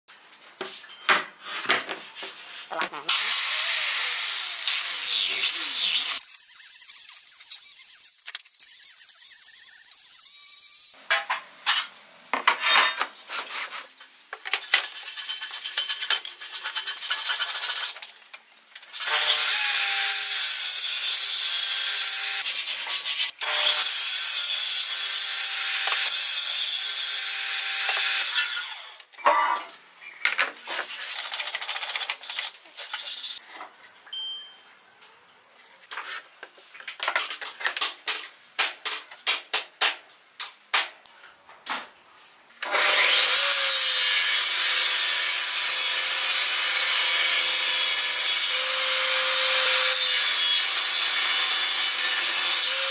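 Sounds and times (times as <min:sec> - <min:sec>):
table saw cutting wood: 0:03.1 - 0:08.2, 0:19.0 - 0:29.0, 0:42.6 - 0:52.9.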